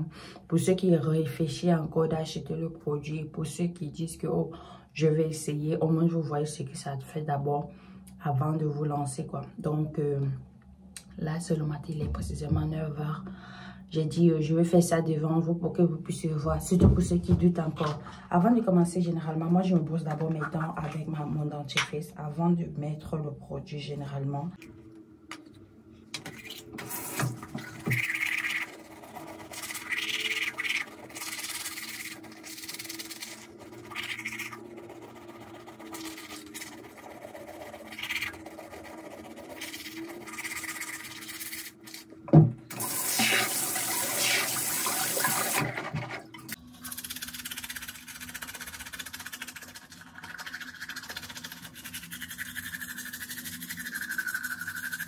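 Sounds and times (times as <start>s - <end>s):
toothbrush scrubbing teeth: 26.2s - 42.1s, 46.7s - 55.0s.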